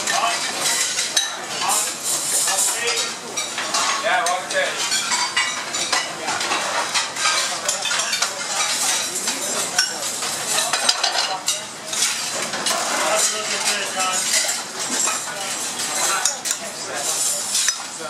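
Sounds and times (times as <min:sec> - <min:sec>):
frying sizzle: 0:00.0 - 0:18.0
metal pans and utensils clattering: 0:00.0 - 0:18.0.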